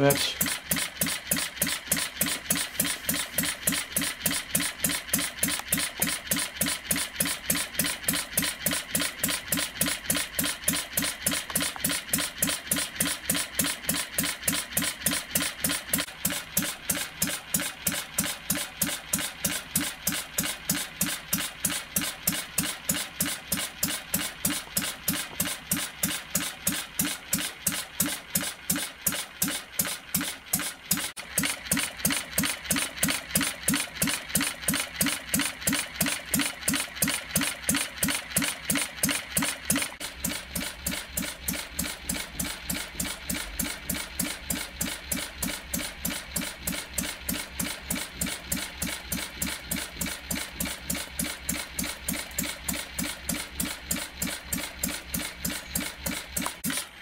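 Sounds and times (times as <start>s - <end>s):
model gas engine running: 0.0s - 57.0s.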